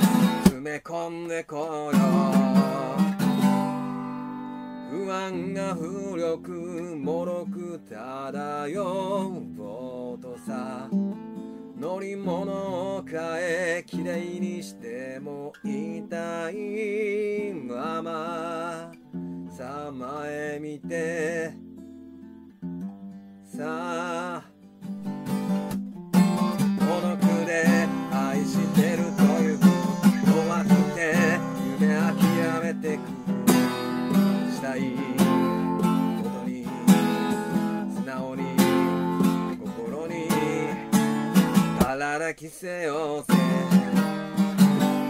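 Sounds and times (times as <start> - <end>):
strummed acoustic guitar: 0.0 - 45.0
wavering melody line: 26.8 - 34.4.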